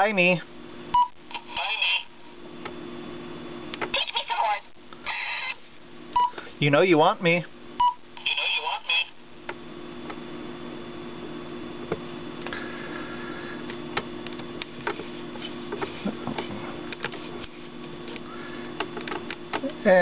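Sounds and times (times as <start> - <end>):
robot toy motors whirring: 5.1 - 5.6.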